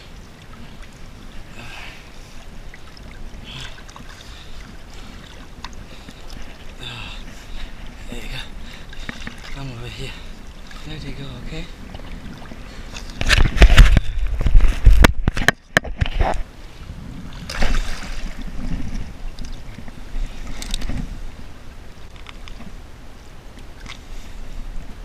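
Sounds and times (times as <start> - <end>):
water splashing and sloshing: 0.0 - 25.0
wind rumble on microphone: 11.4 - 25.0.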